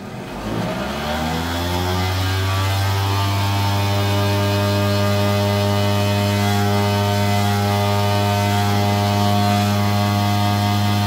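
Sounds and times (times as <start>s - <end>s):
cotton candy machine humming: 3.2s - 11.0s.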